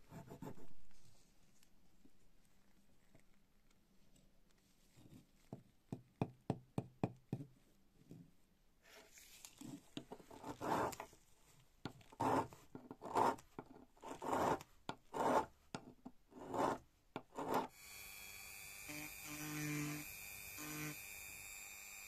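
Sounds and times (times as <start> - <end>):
hand file rasping on metal: 10.3 - 11.0, 12.2 - 13.4, 14.0 - 15.5, 16.4 - 17.7.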